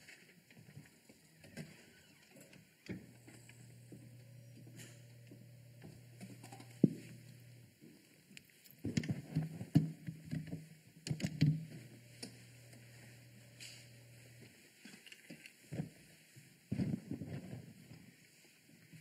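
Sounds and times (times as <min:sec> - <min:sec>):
low steady hum: 0:01.3 - 0:07.8, 0:11.4 - 0:14.6.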